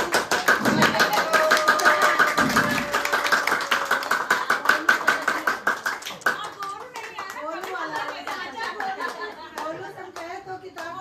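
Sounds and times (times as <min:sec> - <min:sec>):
group clapping in rhythm: 0:00.0 - 0:11.0.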